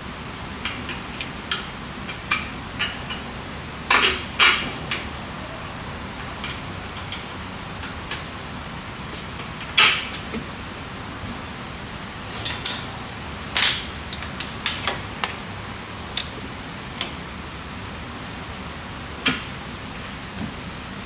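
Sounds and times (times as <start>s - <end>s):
metal clinks and knocks: 12.4s - 13.0s.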